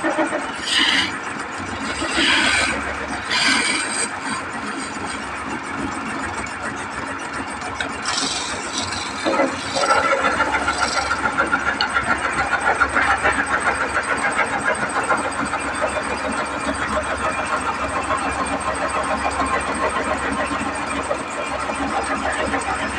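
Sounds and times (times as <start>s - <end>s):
chisel cutting spinning wood: 0.0s - 22.9s
wood lathe running: 0.0s - 22.9s.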